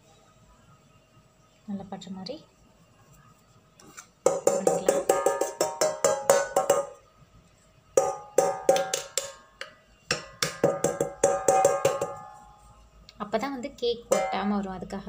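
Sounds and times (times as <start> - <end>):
steel plate knocking and ringing: 4.3 - 7.0, 8.0 - 12.6, 14.1 - 14.7.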